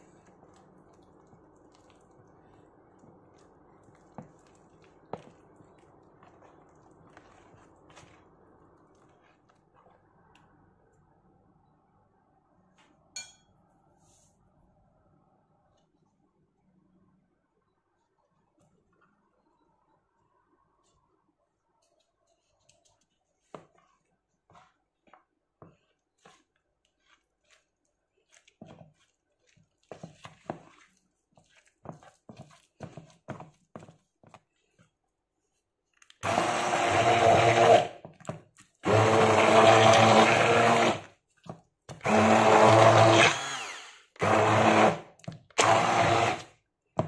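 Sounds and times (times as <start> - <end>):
spatula squishing wet fish: 0.0 - 10.1, 21.8 - 39.1, 41.0 - 42.4.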